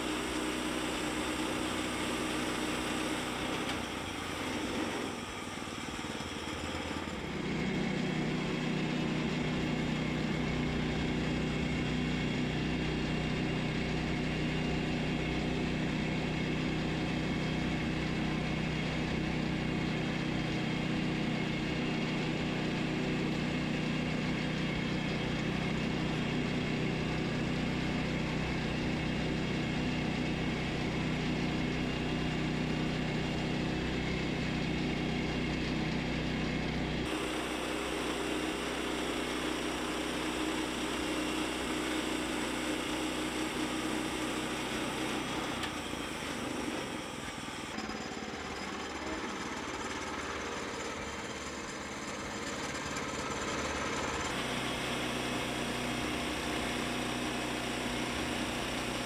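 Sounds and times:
bandsaw mill engine running: 0.0 - 59.0
band blade cutting wood: 54.3 - 59.0.

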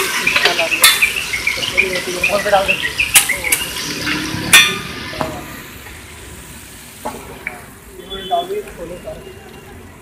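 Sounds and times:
metal utensil clanking on griddle: 0.0 - 2.4, 3.1 - 5.4
oil sizzling on griddle: 0.0 - 9.8.

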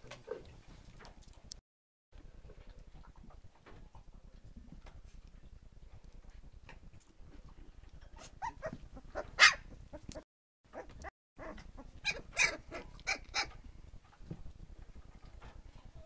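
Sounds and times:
puppies squeaking and yipping: 8.1 - 13.6.

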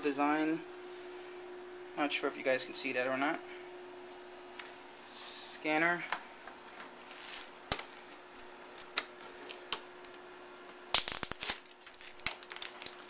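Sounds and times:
faint steady hum: 0.0 - 13.0
plastic packaging rustling: 6.6 - 10.2, 11.0 - 13.0.

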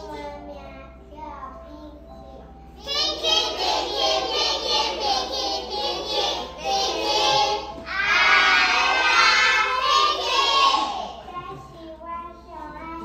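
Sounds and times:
children's voices in unison: 2.8 - 11.9.

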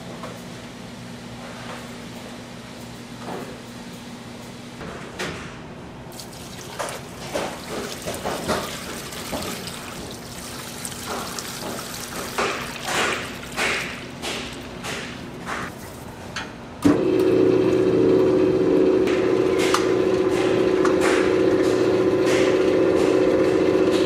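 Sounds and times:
machine hum: 5.7 - 24.0.

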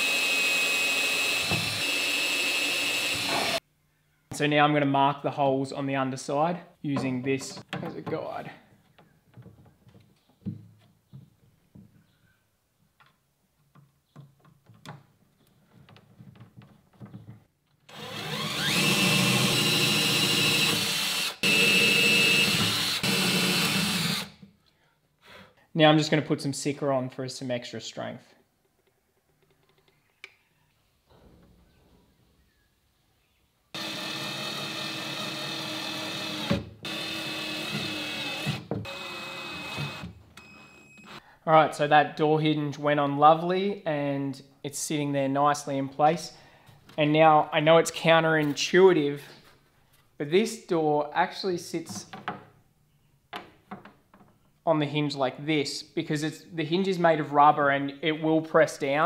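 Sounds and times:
cordless drill whining: 0.0 - 3.6, 17.9 - 24.3, 33.7 - 41.2.

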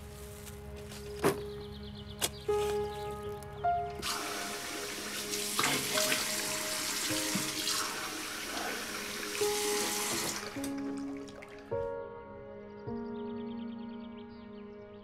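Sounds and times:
tap water running into sink: 4.0 - 11.7.

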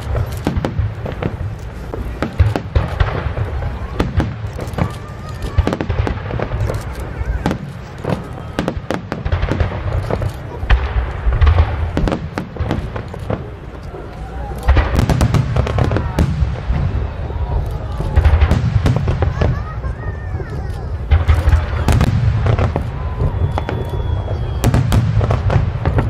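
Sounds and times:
fireworks bangs and crackles: 0.0 - 26.0.

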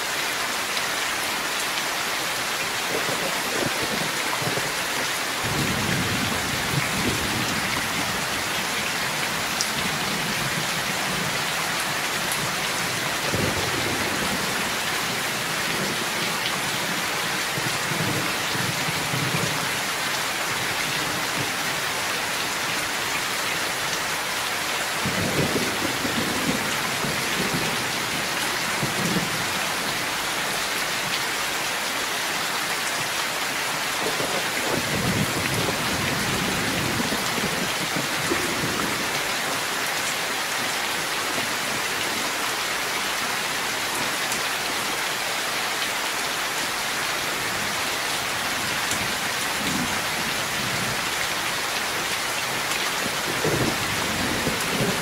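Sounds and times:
heavy rain splashing on ground: 0.0 - 55.0
low rumbles of thunder: 34.0 - 39.1, 53.1 - 55.0.

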